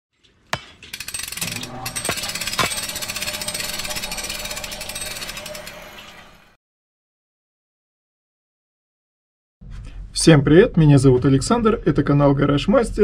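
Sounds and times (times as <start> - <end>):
fast mechanical rattle: 0.9 - 6.3.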